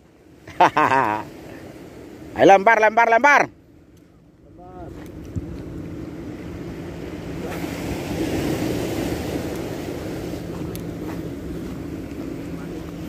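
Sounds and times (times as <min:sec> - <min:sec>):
sea waves against a wall: 0:00.0 - 0:13.0
wind: 0:00.0 - 0:13.0
steady low hum: 0:03.4 - 0:13.0.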